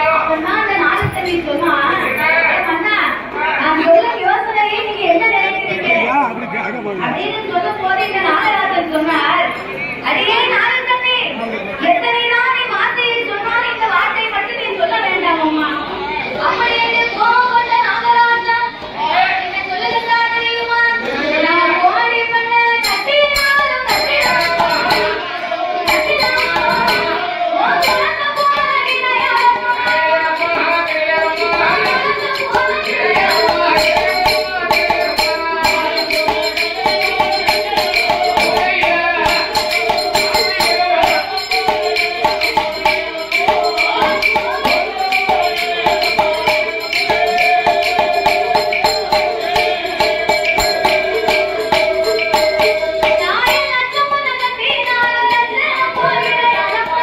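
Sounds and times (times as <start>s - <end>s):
jingling percussion: 0.0s - 4.9s, 21.1s - 57.0s.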